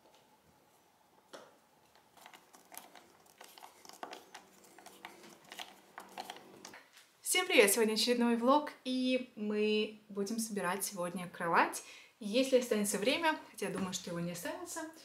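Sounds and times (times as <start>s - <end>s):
small clicks and scrapes: 1.9s - 6.8s.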